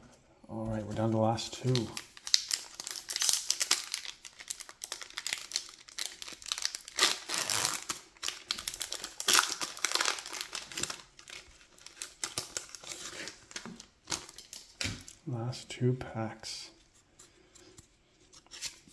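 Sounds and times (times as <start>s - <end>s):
foil wrapper crinkling: 1.5s - 15.2s.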